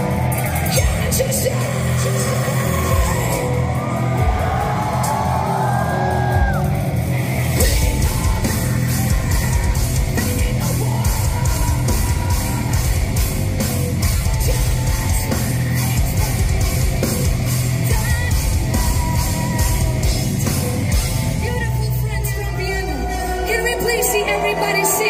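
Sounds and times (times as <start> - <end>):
person singing: 0.0 - 6.5, 7.6 - 25.0
distorted electric guitars: 0.0 - 25.0
drum beat: 7.5 - 21.4.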